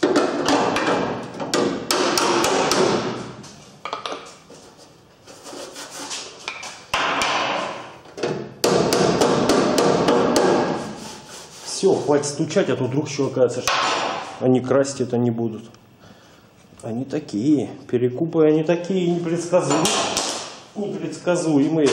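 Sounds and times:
hammer blows on sheet steel: 0:08.6 - 0:11.1.

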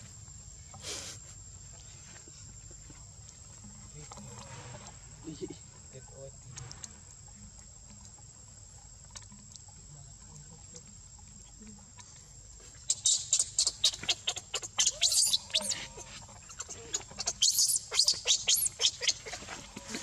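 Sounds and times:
baby monkey screaming: 0:12.9 - 0:19.6.

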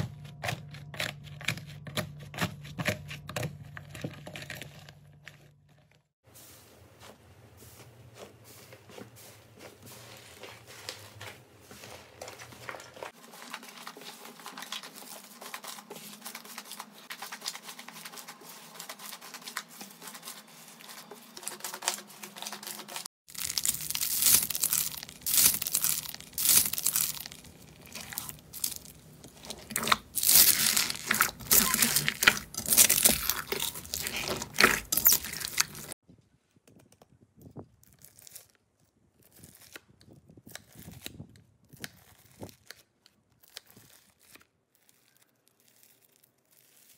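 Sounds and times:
slime with foam beads crunching: 0:07.7 - 0:36.0, 0:43.4 - 0:46.9
slime squeezed crackling: 0:23.3 - 0:36.0.

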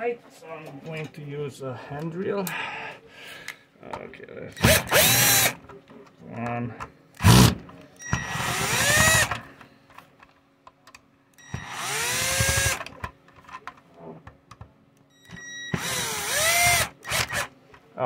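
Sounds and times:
power drill whine: 0:04.6 - 0:05.6, 0:08.1 - 0:09.4, 0:11.5 - 0:12.8, 0:15.3 - 0:17.5.

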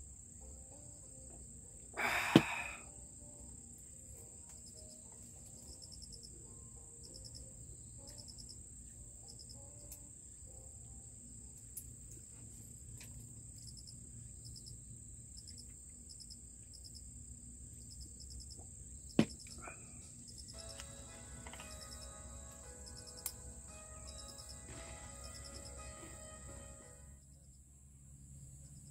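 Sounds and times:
insects buzzing: 0:00.0 - 0:27.6
crickets chirping: 0:00.0 - 0:28.9.

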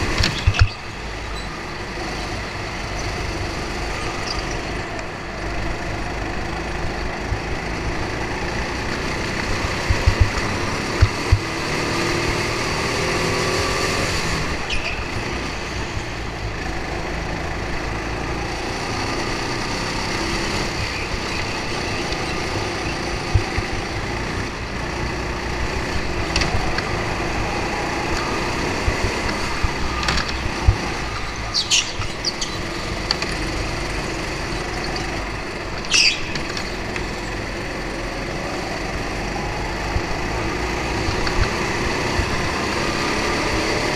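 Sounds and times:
go-kart motor running: 0:00.0 - 0:43.9
high squeals: 0:26.6 - 0:33.0, 0:35.8 - 0:37.3.

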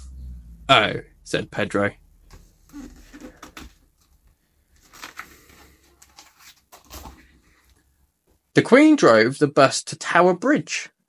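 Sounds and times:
paper page rustling: 0:02.3 - 0:07.8.

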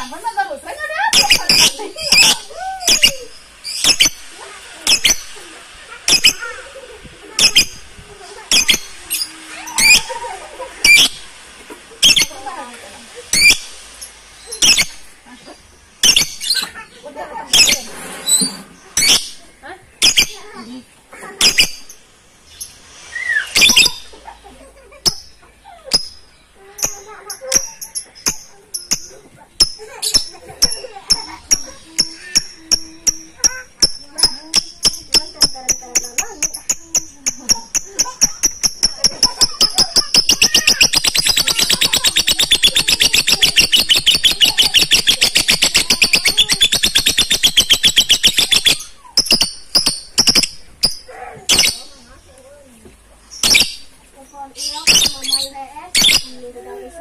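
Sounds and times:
lovebirds screeching: 0:00.0 - 0:11.4, 0:12.0 - 0:20.7, 0:21.4 - 0:52.4, 0:53.2 - 0:57.0
shrill bird calls: 0:22.6 - 0:24.1, 0:25.2 - 0:52.0, 0:54.6 - 0:56.4.

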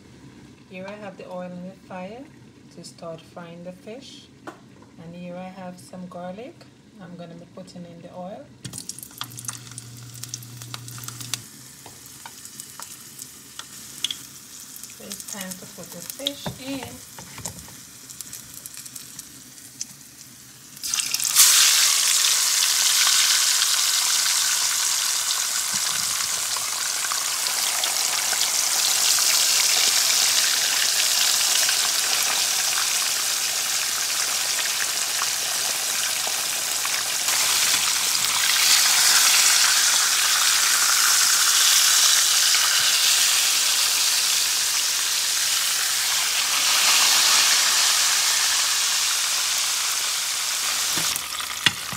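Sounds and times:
fish sizzling in frying pan: 0:08.7 - 0:51.9.

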